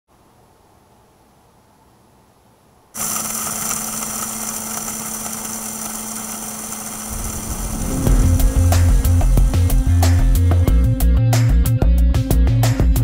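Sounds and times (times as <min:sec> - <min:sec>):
grinder motor humming: 0:03.0 - 0:10.7
music with bass beat: 0:08.1 - 0:13.0.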